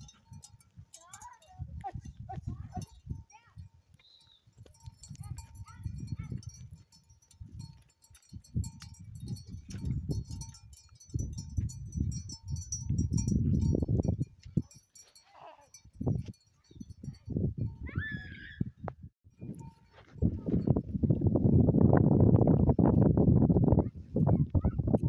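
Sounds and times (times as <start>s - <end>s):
wind buffeting microphone: 0.0s - 15.1s, 15.7s - 25.0s
small herd bells tinkling: 0.0s - 18.1s, 19.3s - 20.9s.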